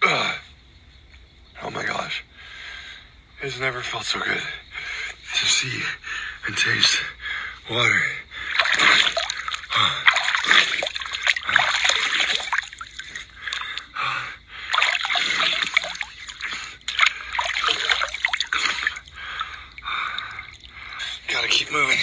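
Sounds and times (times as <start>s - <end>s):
water trickling and dripping: 8.3s - 21.2s
hand splashing in stream water: 8.5s - 14.0s, 14.7s - 20.7s.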